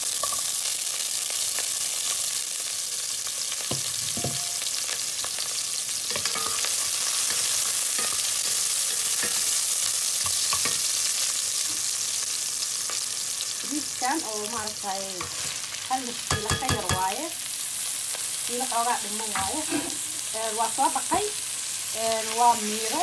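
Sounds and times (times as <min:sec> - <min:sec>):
onions sizzling in oil: 0:00.0 - 0:23.0
wooden spatula scraping pan: 0:19.3 - 0:20.2.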